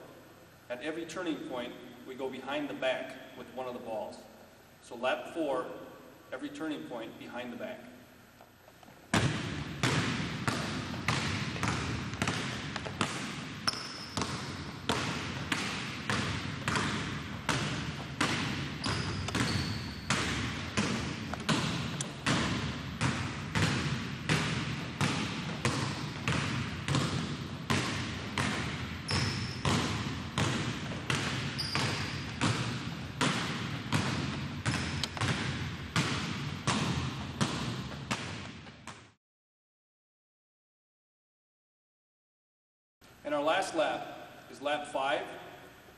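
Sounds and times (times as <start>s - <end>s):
basketballs bouncing on hardwood: 9.1s - 39.2s.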